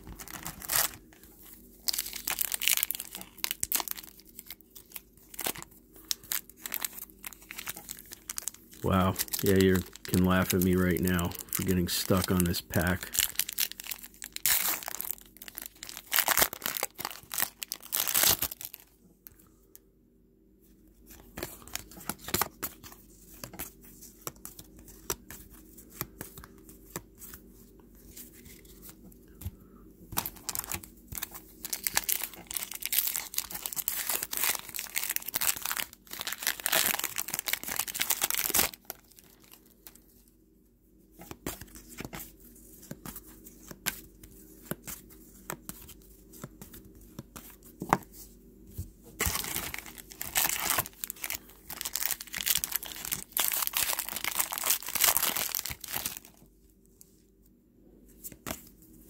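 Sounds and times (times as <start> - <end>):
foil wrappers crinkling and tearing: 0.0 - 18.9, 30.2 - 40.3, 49.2 - 56.4
cards being handled: 21.1 - 35.6, 41.2 - 56.2.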